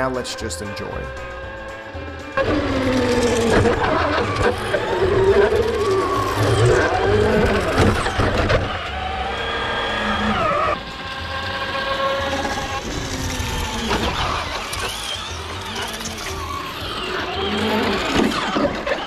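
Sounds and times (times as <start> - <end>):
electric motor whining: 0.0 - 19.0.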